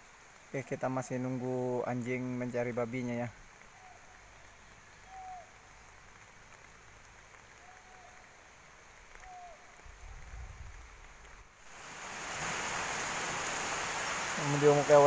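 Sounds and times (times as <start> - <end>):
faint background hiss: 0.0 - 15.0
whistled bird calls: 3.7 - 5.6, 9.2 - 9.7.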